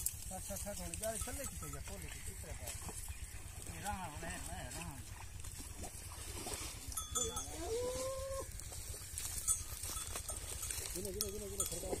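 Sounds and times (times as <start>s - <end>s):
farm animal calling: 0.8s - 5.3s, 7.0s - 12.0s.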